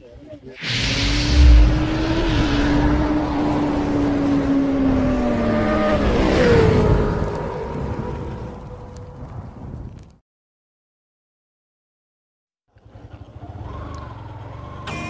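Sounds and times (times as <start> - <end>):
whoosh: 0.6 - 6.8
motorcycle engine drone: 0.6 - 9.3, 12.8 - 15.0.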